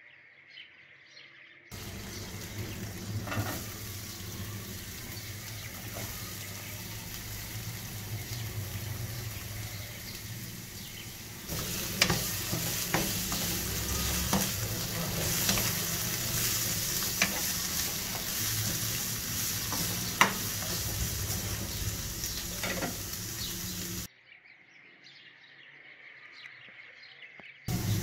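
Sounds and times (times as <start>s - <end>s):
vegetables sizzling in oil: 1.7s - 24.1s, 27.7s - 28.0s
spatula scraping a pan: 7.1s - 23.1s
spatula tapping a pan: 11.5s - 20.8s.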